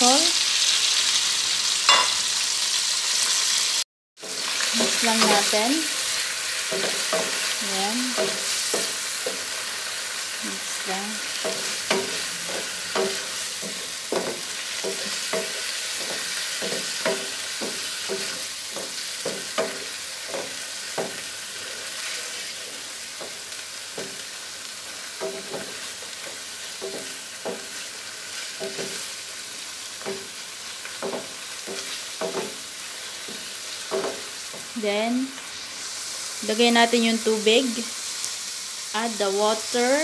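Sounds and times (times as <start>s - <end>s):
paste sizzling in a pan: 0.0s - 40.0s
wooden spatula knocking on a pan: 11.4s - 21.2s, 24.0s - 24.2s, 31.0s - 32.6s.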